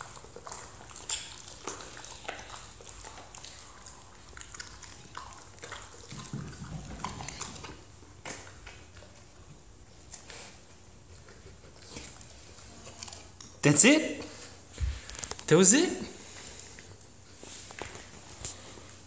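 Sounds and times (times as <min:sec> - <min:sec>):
dog chewing with sharp crunches: 0:00.0 - 0:15.6.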